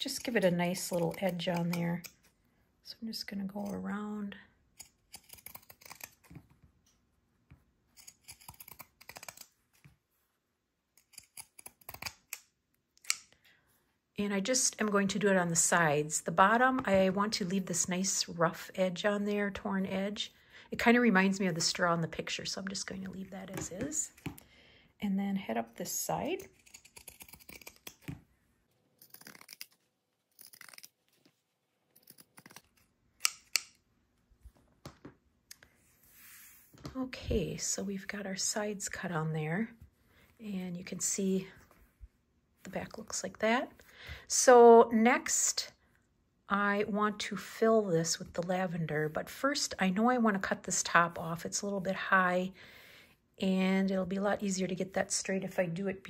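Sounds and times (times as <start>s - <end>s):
shears snipping fabric: 0.1s - 2.2s, 26.2s - 28.2s.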